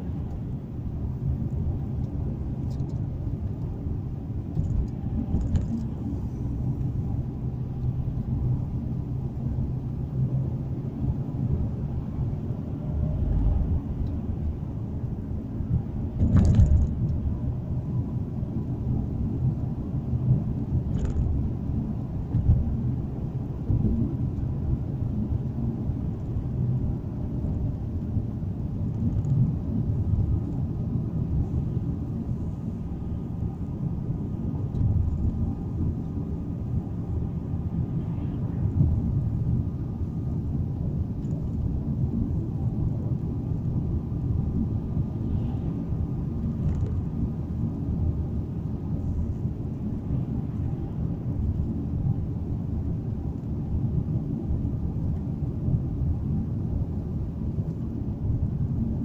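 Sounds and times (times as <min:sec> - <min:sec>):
car cabin road rumble: 0:00.0 - 0:59.0.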